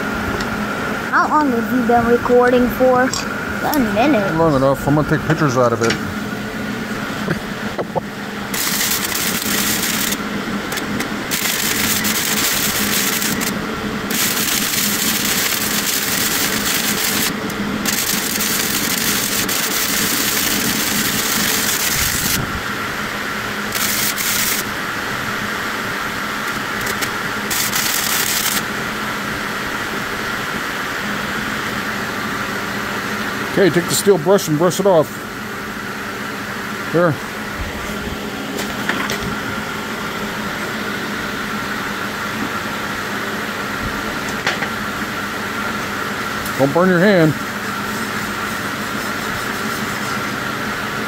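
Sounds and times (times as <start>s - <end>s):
steady low hum: 0.0s - 51.0s
welding arc crackling and sizzling: 6.9s - 31.8s.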